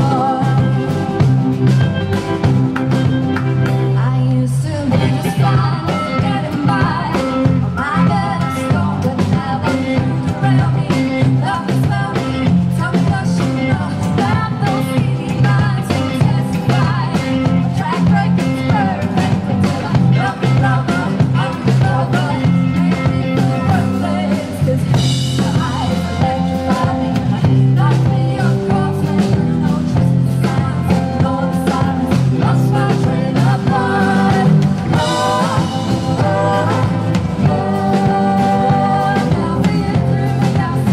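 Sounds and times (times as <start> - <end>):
woman singing backing vocals: 0.0 - 1.3, 3.8 - 40.9
drum kit: 0.0 - 40.9
electric bass: 0.0 - 40.9
electric guitar: 0.0 - 40.9
woman singing lead: 0.0 - 40.9.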